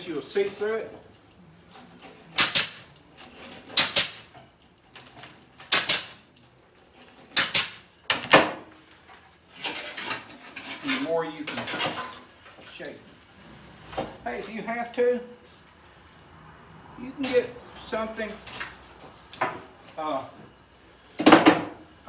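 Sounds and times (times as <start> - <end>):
pneumatic ring gun snapping: 2.4 - 3.0, 3.7 - 4.3, 5.7 - 6.2, 7.3 - 7.9.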